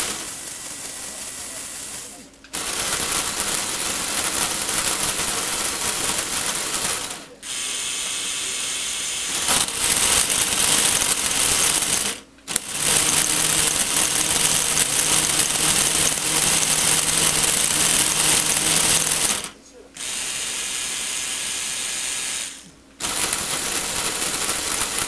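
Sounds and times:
plastic gears whirring: 0.0 - 7.3, 9.3 - 20.4, 21.6 - 25.0.

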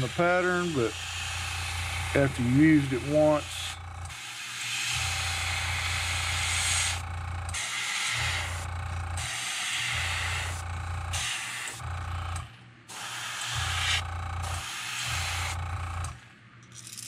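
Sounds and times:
airbrush air hiss: 0.0 - 7.0, 7.6 - 8.6, 12.9 - 15.6
low hum: 1.3 - 4.2, 5.0 - 7.6, 9.9 - 11.2, 11.8 - 12.6, 13.6 - 16.4.

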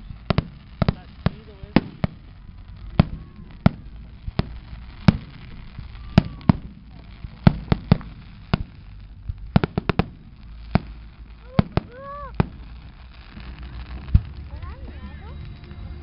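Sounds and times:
fireworks bangs: 0.0 - 16.0.

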